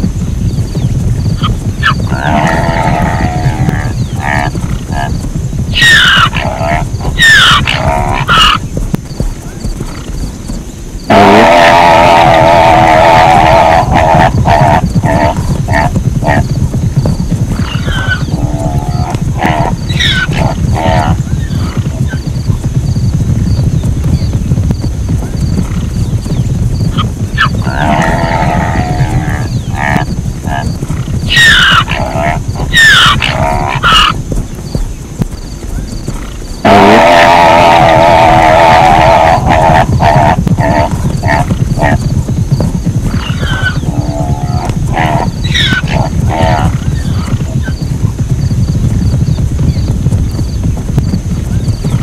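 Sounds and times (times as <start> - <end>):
steady low rumble: 0.0 - 52.0
zebra calling: 1.4 - 8.6, 11.1 - 16.5, 17.6 - 22.2, 26.9 - 34.2, 36.6 - 42.0, 43.1 - 47.8.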